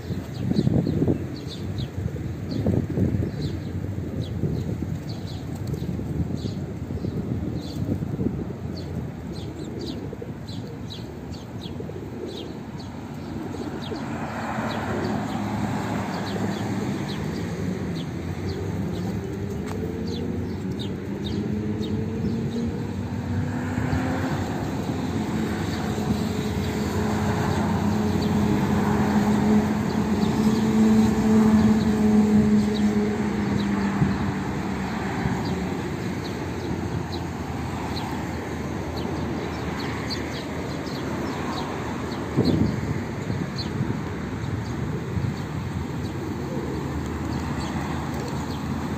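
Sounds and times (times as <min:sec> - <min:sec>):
pigeons cooing: 0:08.5 - 0:41.8, 0:44.8 - 0:48.9.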